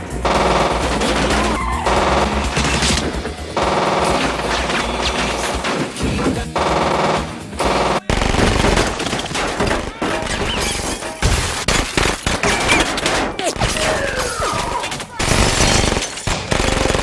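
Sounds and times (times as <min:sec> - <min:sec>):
automatic gunfire bursts: 0:06.6 - 0:10.0, 0:15.2 - 0:17.0.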